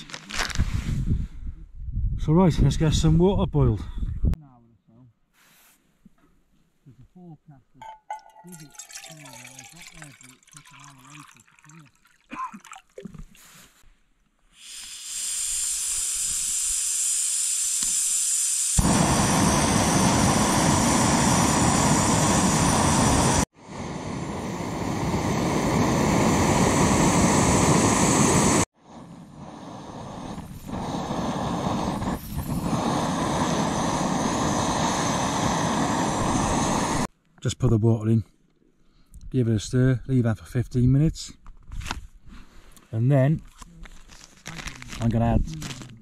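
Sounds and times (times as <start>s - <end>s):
gas stove burner hissing: 14.6s - 37.1s.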